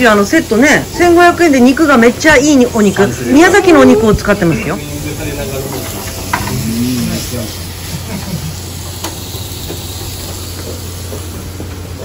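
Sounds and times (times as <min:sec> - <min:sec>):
meat sizzling on a grill: 0:00.0 - 0:12.0
low chatter of diners: 0:00.4 - 0:08.7.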